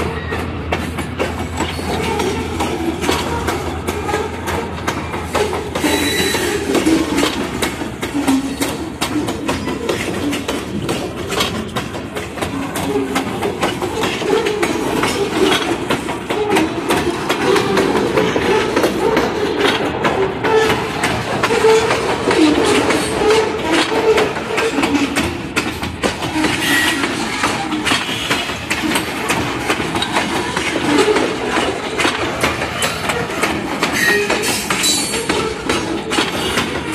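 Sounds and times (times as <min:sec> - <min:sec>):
rumble of train wheels on rail: 0:00.0 - 0:36.9
wheels clacking over rail joints: 0:00.0 - 0:36.9.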